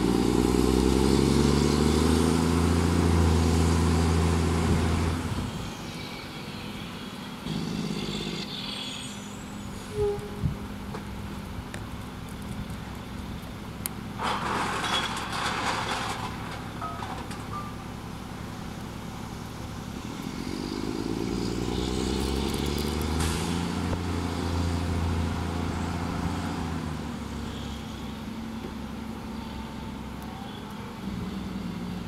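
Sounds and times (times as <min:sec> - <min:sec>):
diesel truck engine revving: 0:00.0 - 0:06.0, 0:18.2 - 0:30.2.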